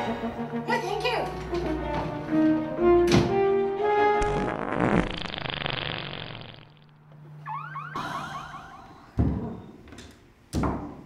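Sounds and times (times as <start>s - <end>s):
long loud fart: 4.1s - 7.0s
car alarm chirping: 7.4s - 9.2s.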